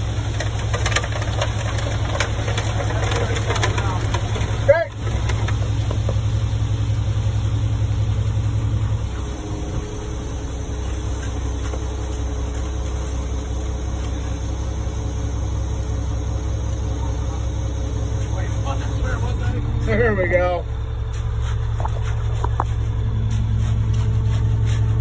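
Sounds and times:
diesel engine running: 0.0s - 25.0s.

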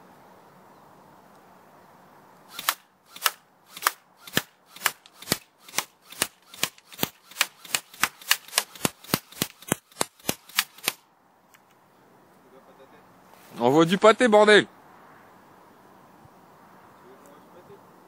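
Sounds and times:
airsoft gun shots: 2.5s - 11.0s.

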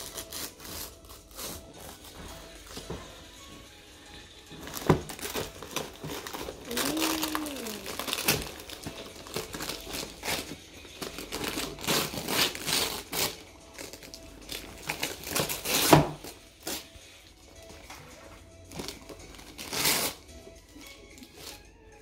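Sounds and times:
wrapping paper tearing and crumpling: 0.0s - 2.8s, 4.6s - 16.9s, 18.7s - 20.3s, 21.1s - 21.7s.

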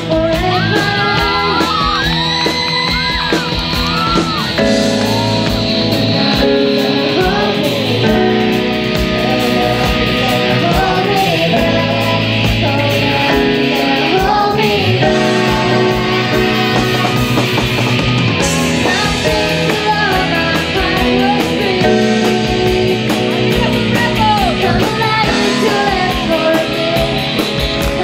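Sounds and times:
girl singing lead: 0.0s - 28.0s
worship band with guitars: 0.0s - 28.0s
men singing along: 5.8s - 17.7s.

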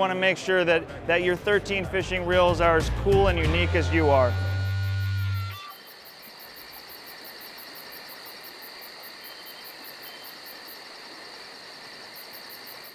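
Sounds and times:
high insect drone: 3.9s - 12.9s
crickets chirping: 4.4s - 12.9s.

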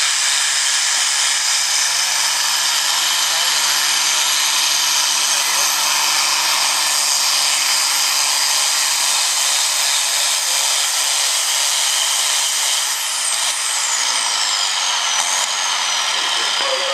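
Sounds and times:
tractor diesel engine under load: 0.0s - 8.6s, 12.9s - 16.9s
turbocharger whine: 12.8s - 16.9s.

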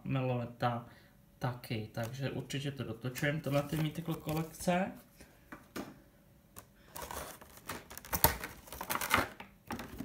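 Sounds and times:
plastic packaging crinkling: 3.4s - 4.8s, 6.9s - 10.0s.

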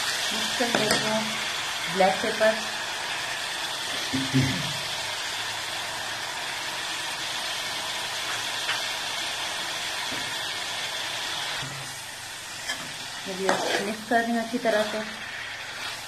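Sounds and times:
meat sizzling in a hot pan: 0.0s - 16.0s.

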